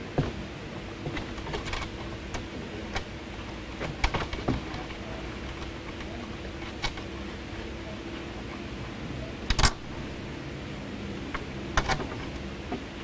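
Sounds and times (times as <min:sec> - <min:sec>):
faint steady hum: 0:00.0 - 0:13.0
wires and connectors clicking: 0:01.1 - 0:07.2, 0:09.5 - 0:10.2, 0:11.2 - 0:12.9.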